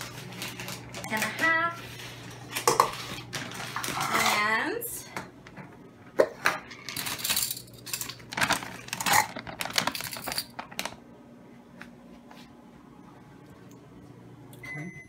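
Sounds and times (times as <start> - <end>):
plastic bag crinkling: 0.0 - 4.4, 6.8 - 11.0
plastic cups clacking: 2.5 - 4.4.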